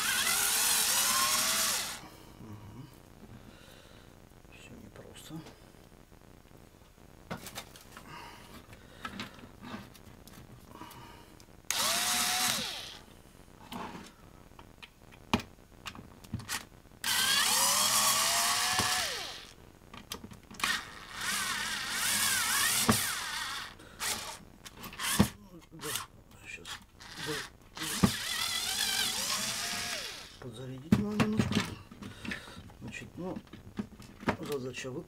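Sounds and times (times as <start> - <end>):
cordless screwdriver whining: 0.0 - 2.0, 11.7 - 13.0, 17.0 - 19.6, 20.6 - 24.4, 25.0 - 26.1, 27.0 - 30.4.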